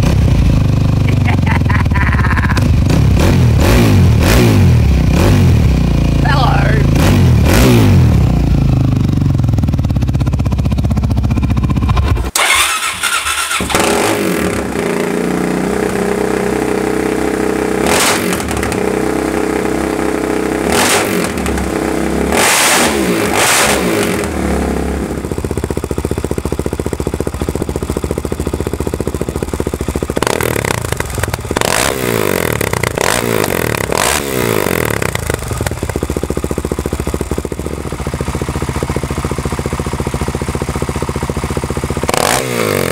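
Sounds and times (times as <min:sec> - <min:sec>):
motorcycle engine revving: 0:00.0 - 0:42.9.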